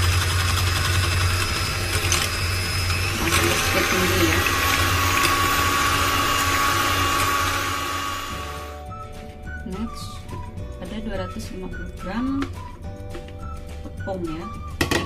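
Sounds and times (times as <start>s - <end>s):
electric mixer whirring: 0.0s - 8.8s.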